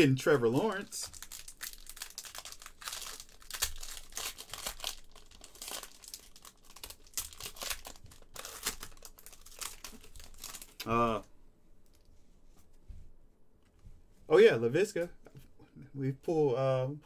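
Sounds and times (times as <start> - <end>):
wrapper crinkling and tearing: 0.3 - 11.0.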